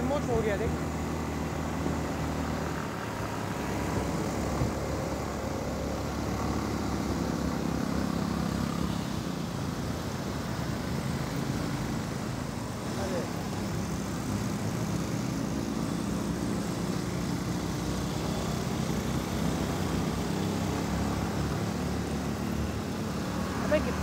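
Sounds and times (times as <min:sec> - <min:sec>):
road and traffic noise: 0:00.0 - 0:24.0
motorcycle engine running: 0:10.1 - 0:24.0.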